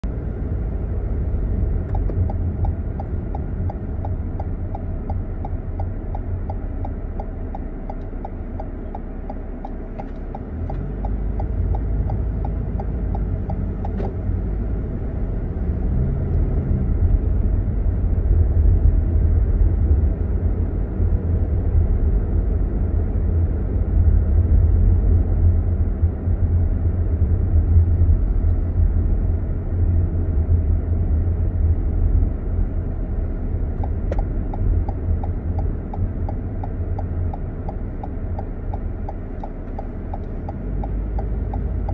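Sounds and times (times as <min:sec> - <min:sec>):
car engine and tyre rumble: 0:00.0 - 0:41.9
light even ticking: 0:01.5 - 0:15.4, 0:33.7 - 0:41.9.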